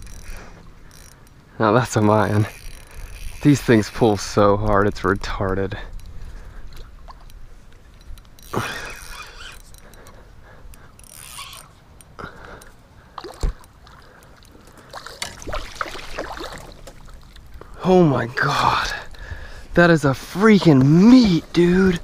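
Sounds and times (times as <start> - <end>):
water splashing around kayak: 13.0 - 17.8.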